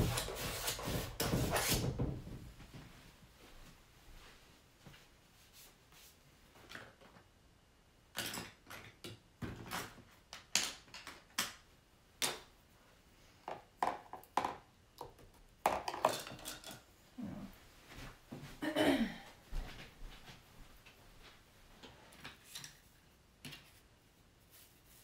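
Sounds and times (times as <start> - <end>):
art supplies knocking and clinking: 13.5 - 16.9.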